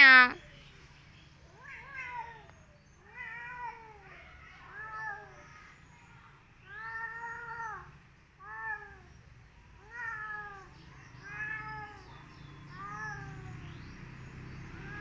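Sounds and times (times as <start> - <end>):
cat yowling: 1.5 - 5.5, 6.7 - 9.1, 9.8 - 13.7, 14.8 - 15.0.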